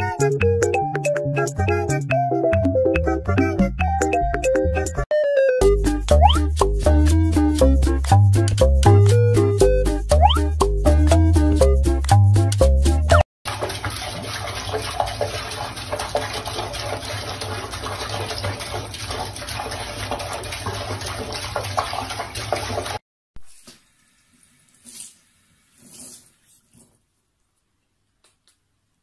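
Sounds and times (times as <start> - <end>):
music: 0.0 - 13.2
tap water running into sink: 13.5 - 23.0.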